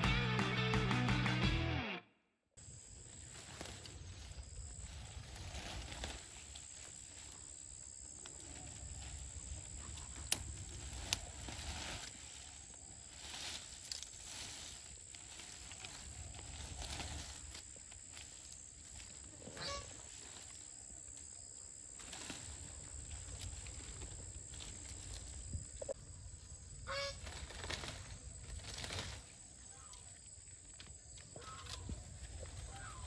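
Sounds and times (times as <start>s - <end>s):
leaves and vines rustling: 2.6s - 33.0s
stems snapping: 9.8s - 12.1s, 13.6s - 14.2s.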